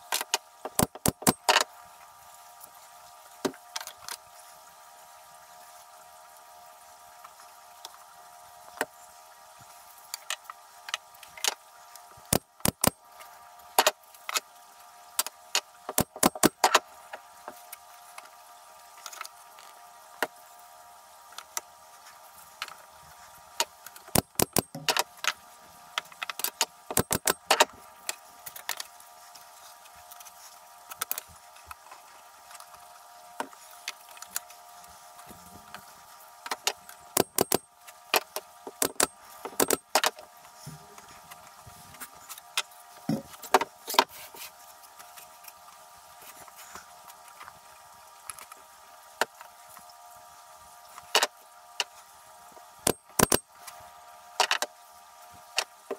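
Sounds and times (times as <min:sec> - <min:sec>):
faint hum: 0:00.0 - 0:55.9
wooden clicks and clacks: 0:26.0 - 0:27.7, 0:36.5 - 0:40.1.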